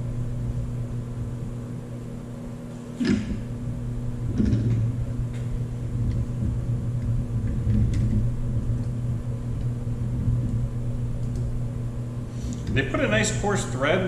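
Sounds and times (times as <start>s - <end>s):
low machine hum: 0.0s - 14.0s
low rumble: 3.2s - 13.2s.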